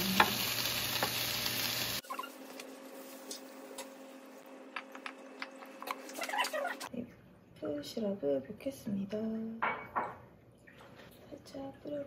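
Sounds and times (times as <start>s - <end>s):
food sizzling in frying pan: 0.0s - 4.4s.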